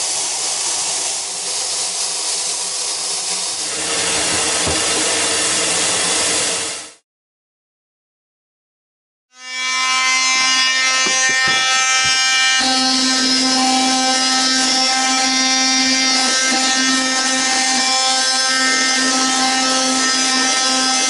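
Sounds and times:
multi-tool sanding fibreglass: 0.0s - 7.0s, 10.3s - 21.0s.

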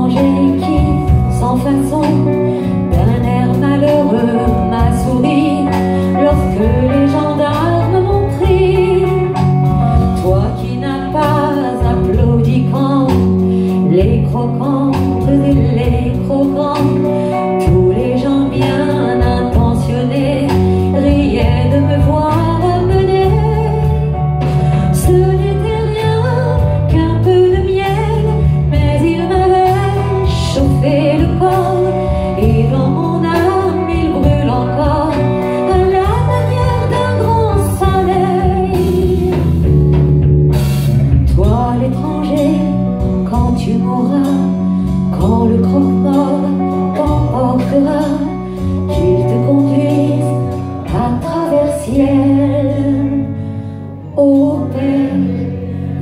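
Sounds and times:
live band playing slow song: 0.0s - 56.0s.

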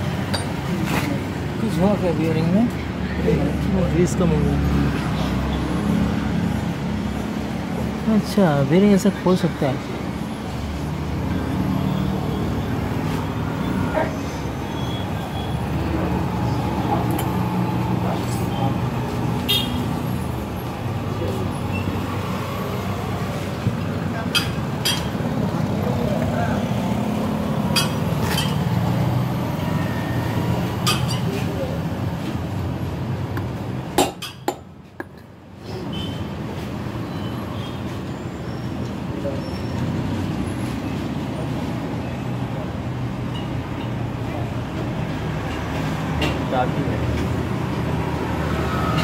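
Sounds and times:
vehicle engine humming: 0.0s - 36.1s.

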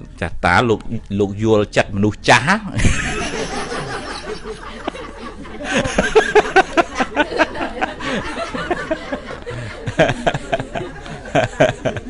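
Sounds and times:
people laughing: 2.8s - 12.0s.

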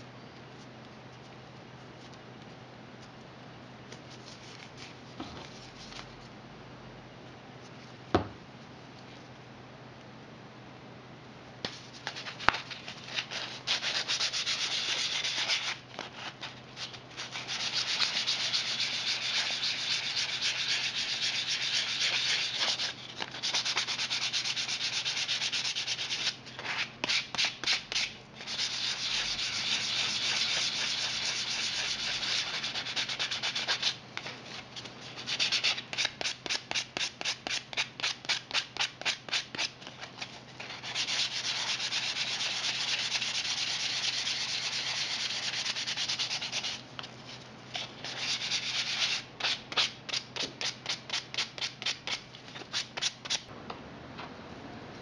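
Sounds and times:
sandpaper rubbing on plastic: 13.2s - 34.0s, 40.6s - 46.8s.

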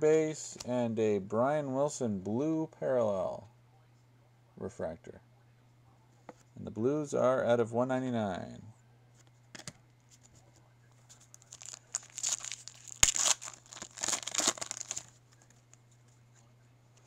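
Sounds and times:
foil wrapper crinkling: 11.2s - 15.8s.

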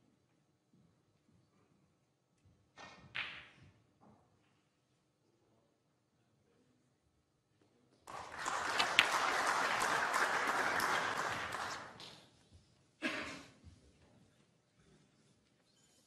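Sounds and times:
audience applauding: 8.1s - 12.1s.

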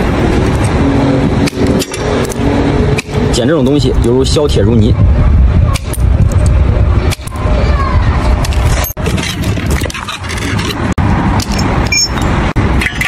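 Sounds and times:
low rumble: 0.0s - 12.8s
wire cutters snipping wire: 1.4s - 2.4s, 3.0s - 3.3s, 5.7s - 6.5s, 7.1s - 7.4s.

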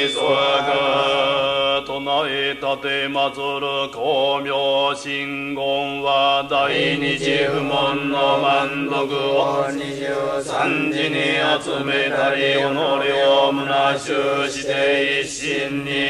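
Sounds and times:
voices chanting held notes: 0.0s - 4.9s, 5.6s - 16.0s
steady low tone: 5.6s - 11.8s.

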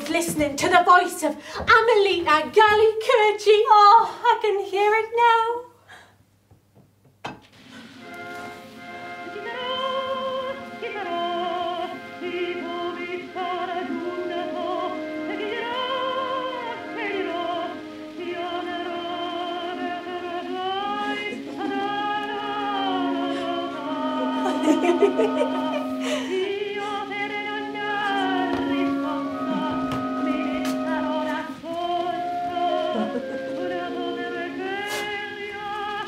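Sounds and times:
sustained accompaniment: 7.6s - 36.0s
soprano singing an aria: 9.0s - 36.0s.

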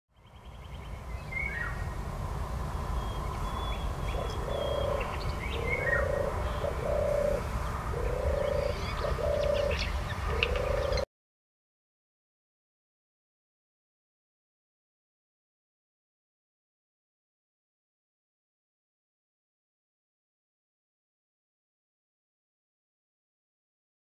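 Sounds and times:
small birds chirping: 3.0s - 11.1s
dove purring low rolling notes: 4.0s - 11.0s.

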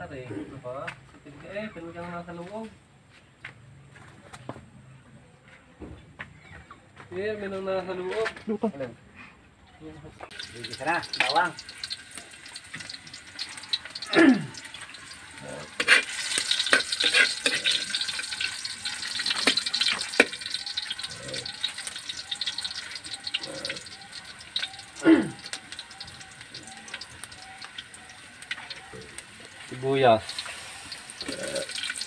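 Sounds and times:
garlic sizzling in hot oil: 10.3s - 32.0s
metal ladle scraping wok: 14.6s - 23.9s.

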